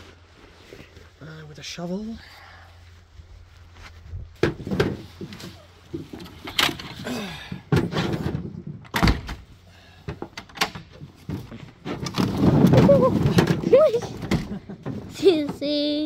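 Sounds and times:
carrots knocking and thumping: 4.4s - 6.3s.

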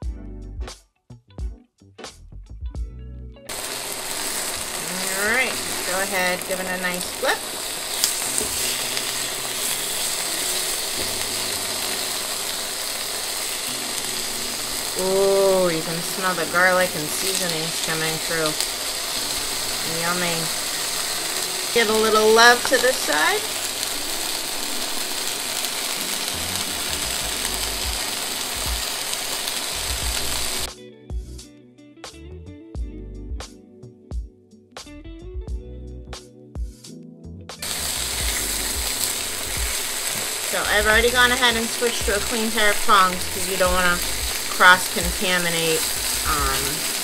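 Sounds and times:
chicken sizzling in a pan: 3.5s - 30.7s, 37.6s - 47.0s
tongs turning meat: 3.6s - 30.6s, 37.6s - 47.0s.

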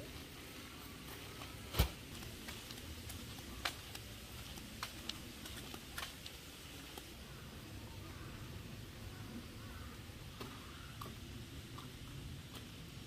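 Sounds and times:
light rain: 0.0s - 13.0s
raindrops tapping: 1.8s - 7.2s.

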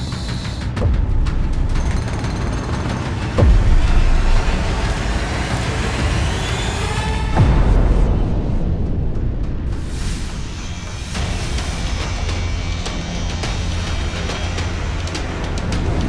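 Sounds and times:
rising tones: 3.3s - 8.4s.

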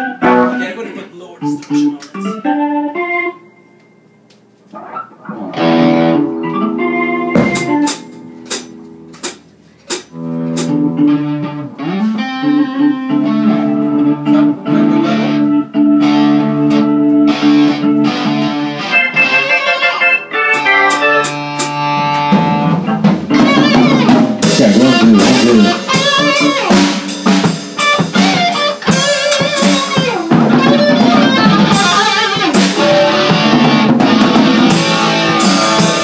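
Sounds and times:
electric guitar: 0.0s - 0.6s, 1.4s - 36.0s
keyboard chords: 0.0s - 36.0s
drum and cymbal hits: 7.3s - 10.8s, 20.5s - 36.0s.

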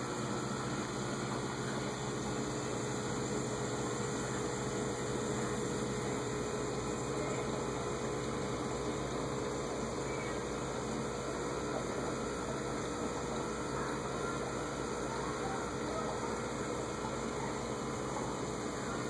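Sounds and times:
aquarium pump humming: 0.0s - 19.0s.

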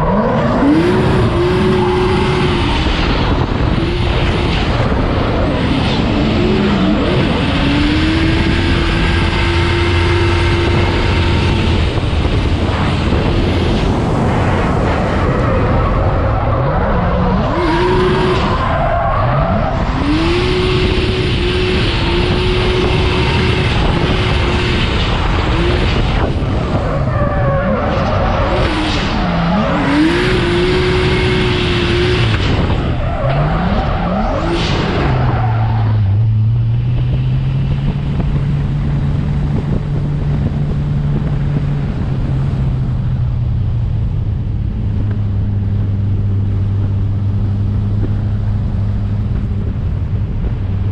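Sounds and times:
car engine revving hard: 0.0s - 14.1s, 17.0s - 26.9s, 27.9s - 39.8s.

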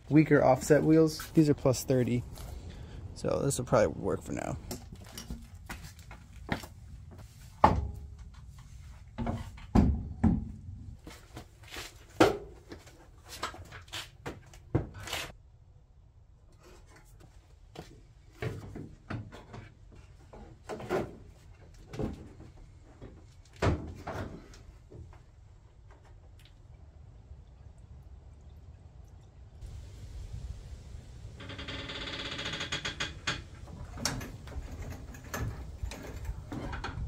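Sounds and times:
car body parts knocking and clicking: 9.2s - 10.6s.

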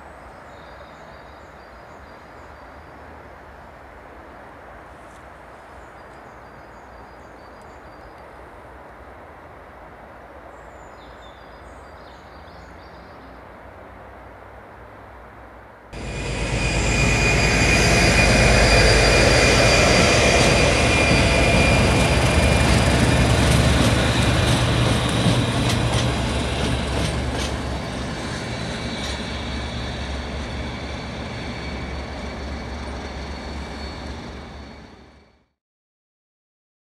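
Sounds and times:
diesel locomotive engine rumbling: 16.0s - 35.4s
wheels clicking over rail joints: 22.9s - 29.4s.

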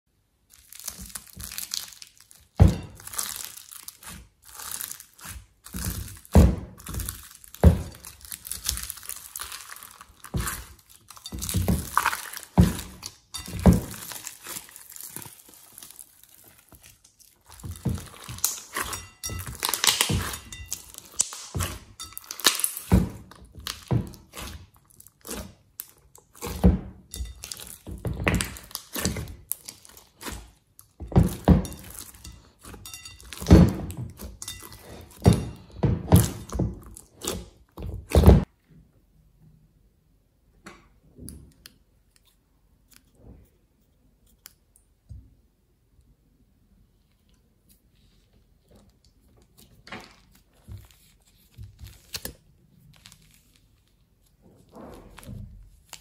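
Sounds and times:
foam bead slime crunching: 0.4s - 38.5s, 47.0s - 56.0s
slime thuds and squelches: 0.5s - 38.5s.

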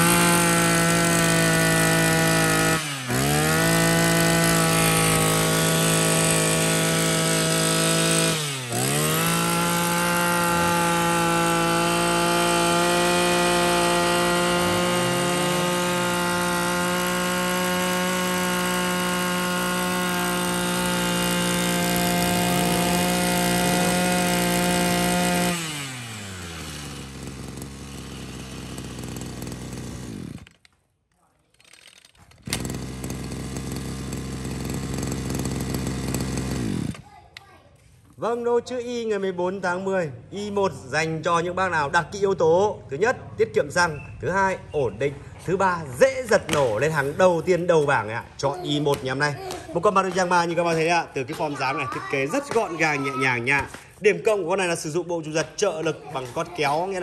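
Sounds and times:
brush cutter engine running: 0.0s - 30.8s, 31.6s - 37.0s.

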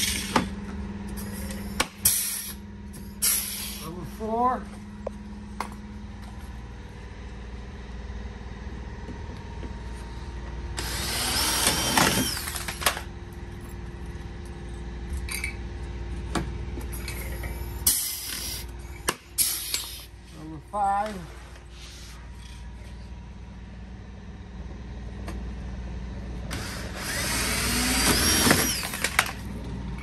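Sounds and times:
rivet gun air hiss: 2.0s - 2.6s, 3.2s - 3.9s, 19.4s - 20.1s
cordless drill whine: 10.8s - 13.0s, 26.5s - 29.4s.

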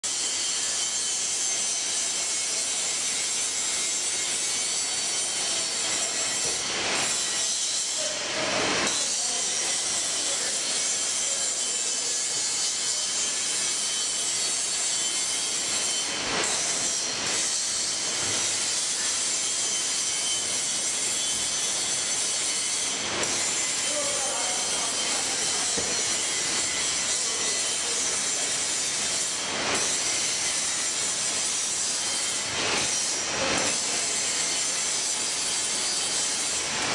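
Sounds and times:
laminator rollers hissing: 15.6s - 36.9s.

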